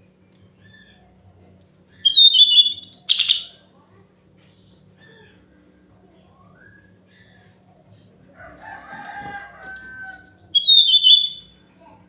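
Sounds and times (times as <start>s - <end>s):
bird song whistles and trills: 1.6s - 3.6s, 5.0s - 7.4s, 10.1s - 11.6s.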